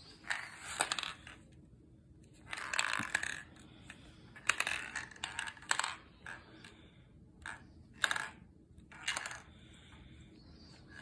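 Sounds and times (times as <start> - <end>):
steel ball rolling in plastic maze: 0.2 - 1.4, 2.4 - 3.6, 4.4 - 6.5, 7.4 - 9.5.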